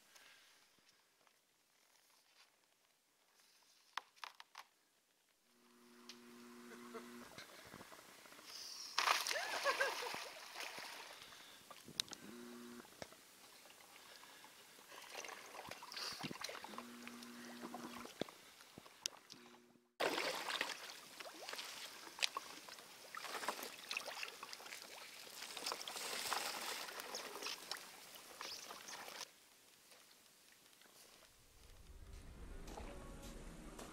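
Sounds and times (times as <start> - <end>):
boots sloshing through water: 14.9 - 18.2, 20.0 - 29.3.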